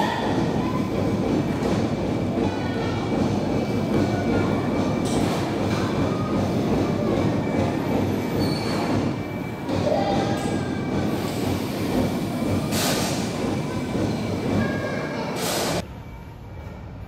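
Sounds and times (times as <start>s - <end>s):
train wheels rumbling on rail: 0.0s - 15.8s
high wheel squeal: 8.0s - 10.7s.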